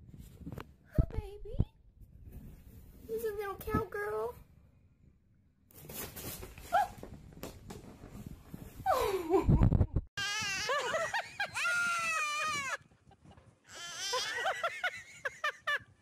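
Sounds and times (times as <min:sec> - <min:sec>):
baby yelling: 0:10.2 - 0:10.8, 0:13.7 - 0:14.6.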